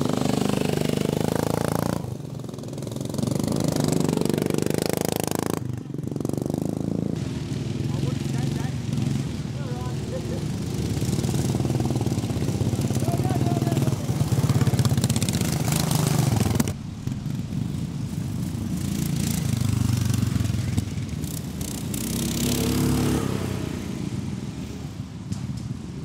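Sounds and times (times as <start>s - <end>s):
lawn mower engines revving: 0.0s - 26.0s.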